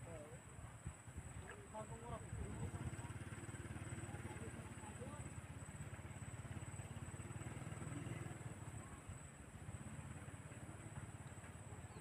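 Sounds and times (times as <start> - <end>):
small engine running: 1.8 - 12.0.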